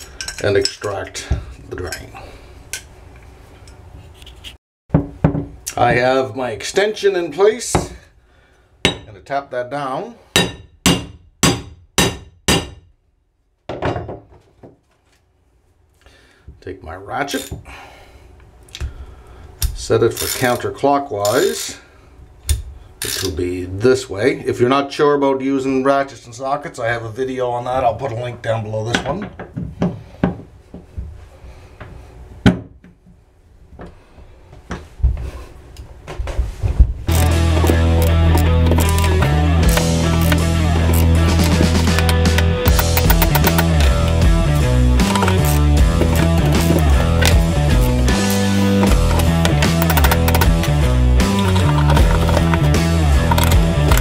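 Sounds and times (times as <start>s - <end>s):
hammer striking metal: 8.9s - 9.1s, 10.4s - 12.9s, 42.7s - 43.9s, 48.9s - 50.7s
ratchet clicking: 37.1s - 37.4s, 42.0s - 43.8s, 48.9s - 50.7s, 51.3s - 54.0s.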